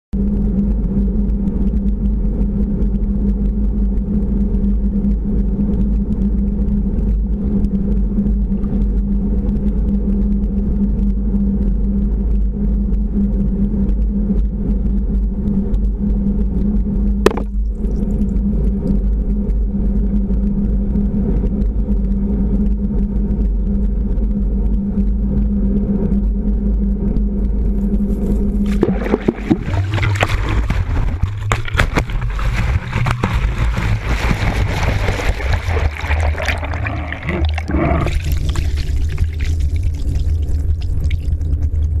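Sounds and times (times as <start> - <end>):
underwater boat engine drone: 0.2 - 42.0
water rushing: 28.7 - 41.6.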